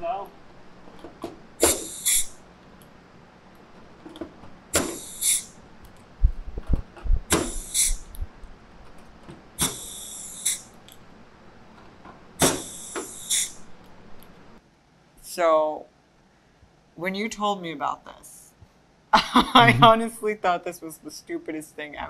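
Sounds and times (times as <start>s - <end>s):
pneumatic tool air hiss: 1.6s - 2.4s, 4.8s - 5.6s, 7.3s - 8.1s, 9.6s - 10.7s, 12.4s - 13.7s.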